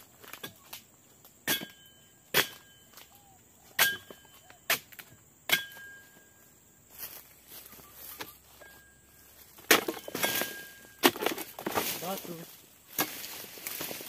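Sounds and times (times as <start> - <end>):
steel chisel chopping palm trunk: 1.5 - 2.7, 3.8 - 6.0, 9.6 - 11.8
metallic ring: 1.5 - 2.9, 5.5 - 6.4, 8.5 - 9.2.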